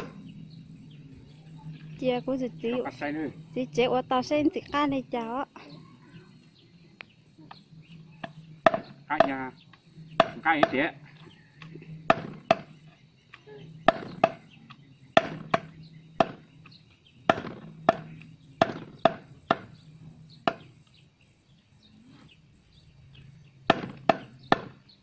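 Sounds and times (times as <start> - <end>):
knife chopping on wooden block: 23.7 - 24.8.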